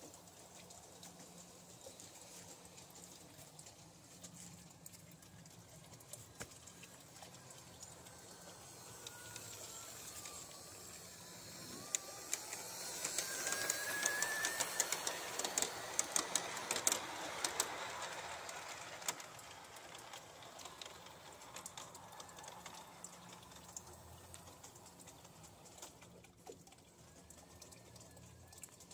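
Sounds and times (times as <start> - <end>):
wheels clicking on track: 0.0 - 28.9
model train rumbling past: 6.7 - 25.9.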